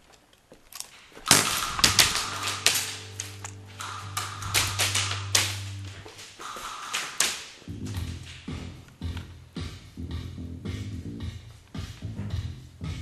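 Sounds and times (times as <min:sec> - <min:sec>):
pellets cracking against hard surfaces: 0:00.0 - 0:09.3
steady low hum: 0:01.1 - 0:13.0
airsoft guns firing: 0:01.2 - 0:08.5.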